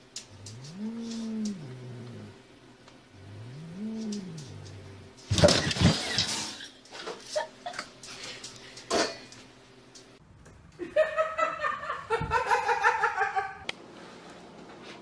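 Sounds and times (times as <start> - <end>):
high-pitched laughter: 10.8 - 13.6.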